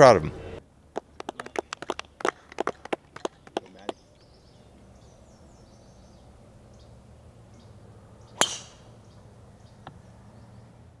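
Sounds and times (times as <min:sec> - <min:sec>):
bird chirps: 0:03.4 - 0:10.6
sharp crack: 0:08.4 - 0:08.9.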